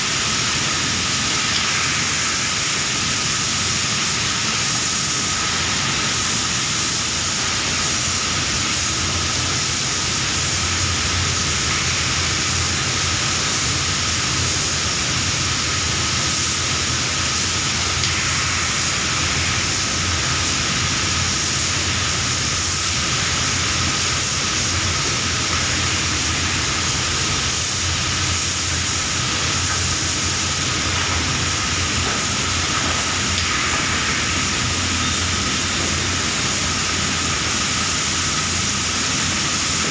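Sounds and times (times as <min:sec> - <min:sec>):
air spray gun hissing: 0:00.0 - 0:39.9
low machinery hum: 0:14.9 - 0:39.9.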